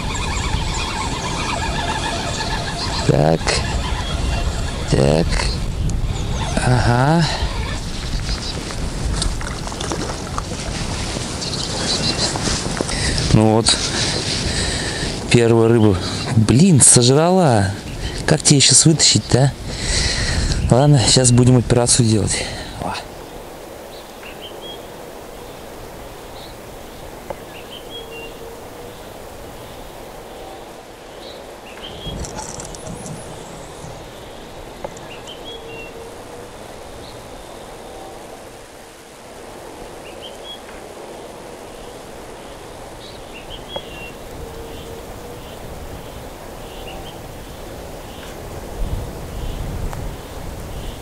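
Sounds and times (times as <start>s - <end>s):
wind rushing: 0.0s - 17.0s, 31.8s - 35.9s
small birds chirping: 0.0s - 36.2s, 41.7s - 51.0s
steady background hiss: 0.0s - 51.0s
wind buffeting microphone: 0.0s - 51.0s
flowing water: 28.3s - 51.0s.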